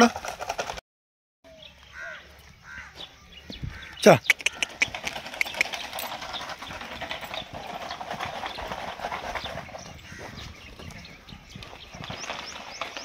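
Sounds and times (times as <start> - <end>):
hoofbeats on loose sand: 2.8 - 13.0.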